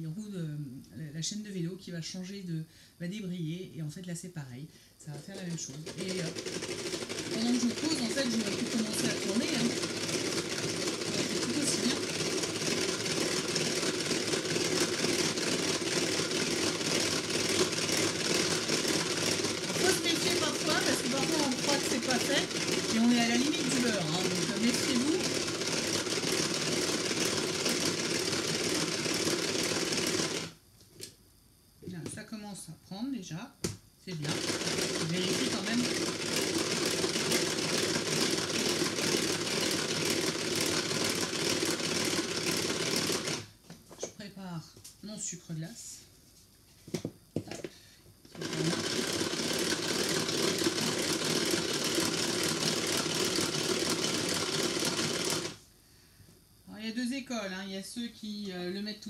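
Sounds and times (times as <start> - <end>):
hand-cranked beater whirring: 5.1 - 30.6, 34.1 - 43.5, 48.3 - 55.6
fine rapid clicking: 5.2 - 30.5, 34.2 - 43.4, 48.4 - 55.6.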